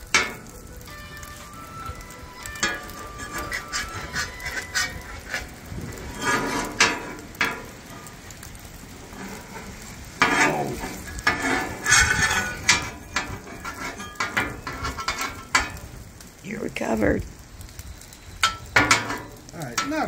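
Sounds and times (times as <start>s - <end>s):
food sizzling: 0.0s - 20.0s
metal spatulas scraping on griddle: 0.1s - 0.6s, 2.5s - 16.0s, 18.4s - 20.0s.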